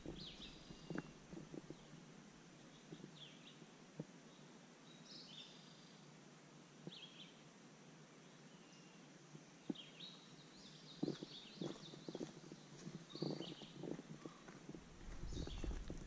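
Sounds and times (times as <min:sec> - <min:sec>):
birds chirping: 0:00.0 - 0:02.0, 0:09.6 - 0:16.0.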